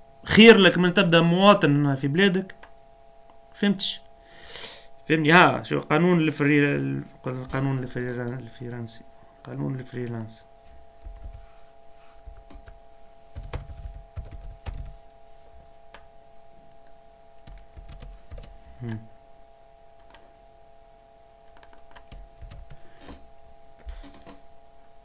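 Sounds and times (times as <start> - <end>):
faint hum: 0.0 - 25.0
keyboard typing: 9.9 - 10.4, 11.0 - 11.5, 12.2 - 15.1, 16.7 - 18.6, 20.0 - 20.2, 21.4 - 23.2.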